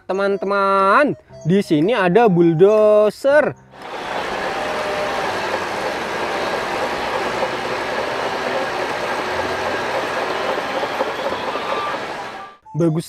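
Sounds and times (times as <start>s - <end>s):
bulldozer engine running: 3.8s - 12.6s
steel tracks clattering and squealing: 3.8s - 12.6s.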